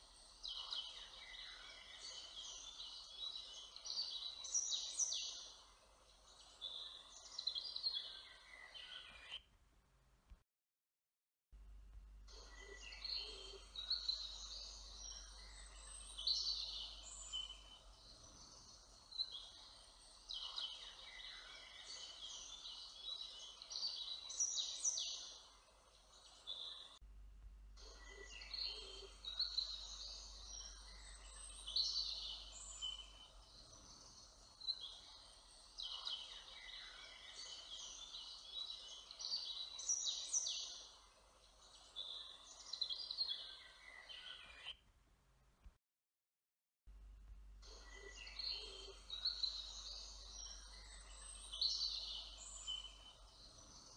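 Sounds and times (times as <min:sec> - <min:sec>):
songbirds singing: 0:00.0 - 0:09.4, 0:12.3 - 0:27.0, 0:27.8 - 0:44.8, 0:47.6 - 0:53.9
faint low hum: 0:11.6 - 0:39.9, 0:46.9 - 0:53.9.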